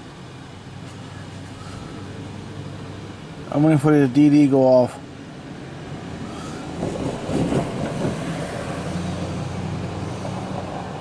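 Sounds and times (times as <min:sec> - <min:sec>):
steady low hum: 0:00.0 - 0:11.0
train wheels clattering over rails: 0:06.5 - 0:09.2.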